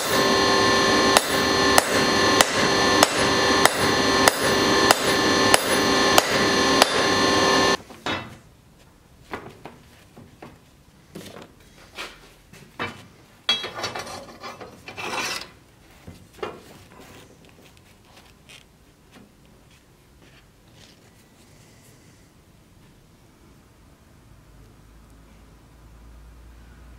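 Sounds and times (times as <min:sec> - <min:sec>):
hammer ringing on anvil: 0:00.0 - 0:07.8.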